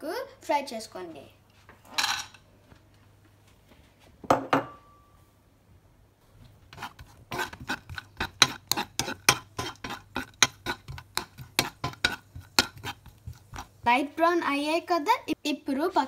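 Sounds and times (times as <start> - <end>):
metal spoon scraping a frying pan: 6.7 - 13.8.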